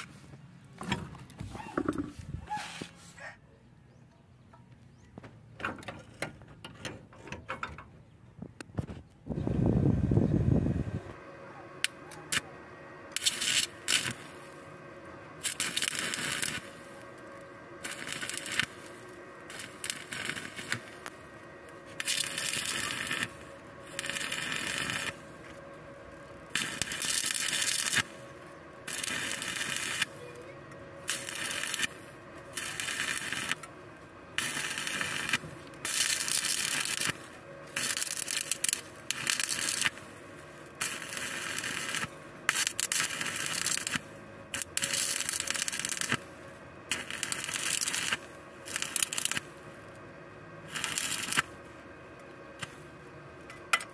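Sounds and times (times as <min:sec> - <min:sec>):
faint steady hum: 0:00.0 - 0:53.9
welding arc crackling: 0:11.8 - 0:12.5, 0:13.1 - 0:53.9.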